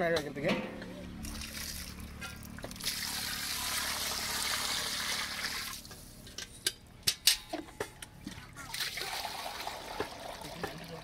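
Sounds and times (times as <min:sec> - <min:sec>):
water pouring into a pot: 0:08.7 - 0:11.0.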